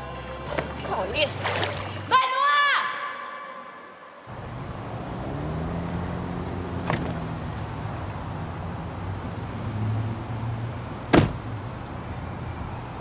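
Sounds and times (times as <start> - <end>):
car door slamming: 6.8 - 7.4, 11.0 - 11.6.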